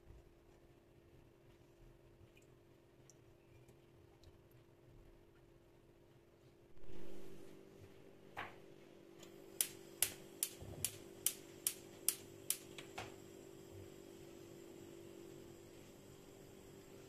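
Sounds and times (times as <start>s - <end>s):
spark igniter clicking: 9.2s - 13.1s.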